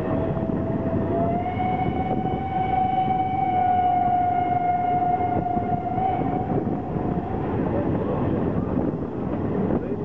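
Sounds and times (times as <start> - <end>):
steam locomotive whistle: 0.0 - 6.9
train carriages rumbling on track: 0.0 - 10.0.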